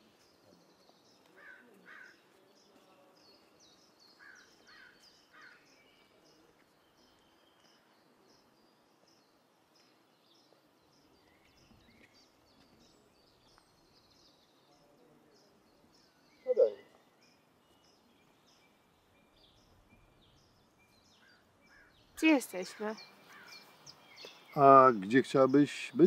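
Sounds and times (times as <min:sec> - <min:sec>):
birds chirping: 0:09.8 - 0:26.0
lower bird calls: 0:16.4 - 0:17.0.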